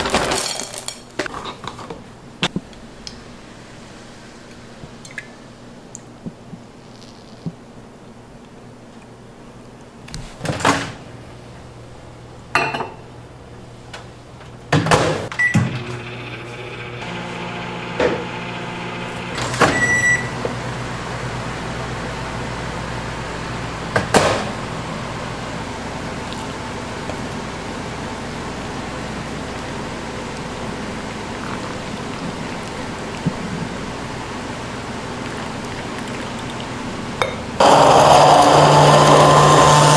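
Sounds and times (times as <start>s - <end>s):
appliance hum: 9.2s - 39.9s.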